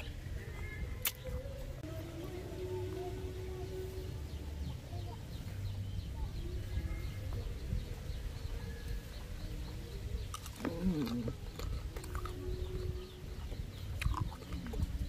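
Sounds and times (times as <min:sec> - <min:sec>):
crunchy chewing: 0:09.6 - 0:15.0
person humming mmm: 0:10.4 - 0:15.0.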